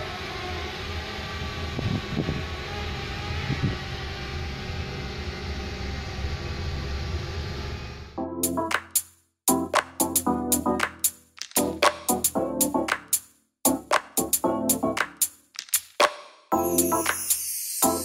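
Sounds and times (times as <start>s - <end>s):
drone propeller whine: 0.0s - 8.2s.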